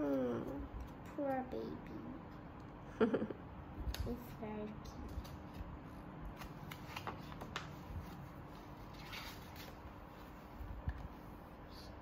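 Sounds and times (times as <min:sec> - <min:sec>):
book pages rustling and turning: 0:03.9 - 0:12.0.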